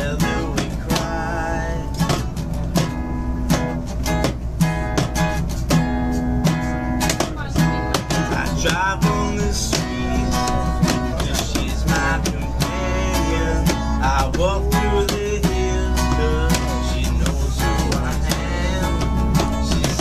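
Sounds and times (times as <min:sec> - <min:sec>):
man singing: 0:00.0 - 0:02.4, 0:07.4 - 0:20.0
acoustic guitar strumming: 0:00.0 - 0:20.0
train rumbling: 0:00.0 - 0:20.0.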